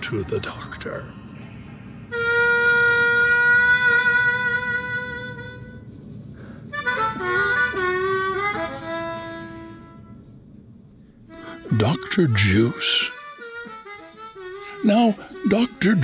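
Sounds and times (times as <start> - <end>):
harmonica playing: 2.1 - 6.0, 6.7 - 10.3, 11.2 - 16.0.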